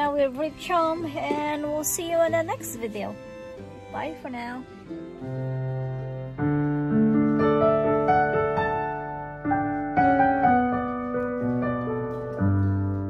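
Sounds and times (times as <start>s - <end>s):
digital piano playing slowly: 4.7s - 13.0s.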